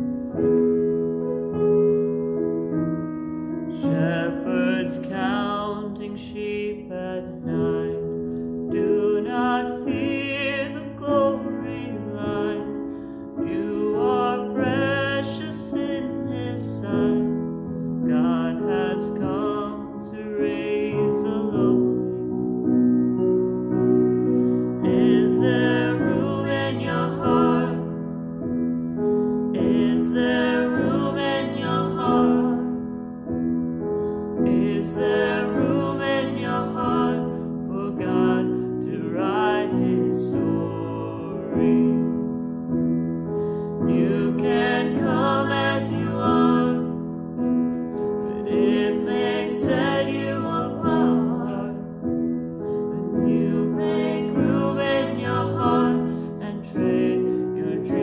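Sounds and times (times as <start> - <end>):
grand piano: 0.0 - 58.0
man and woman singing duet: 3.8 - 17.5, 18.1 - 22.0, 24.8 - 28.0, 29.5 - 32.8, 34.4 - 42.4, 43.8 - 47.1, 48.3 - 52.0, 53.0 - 58.0.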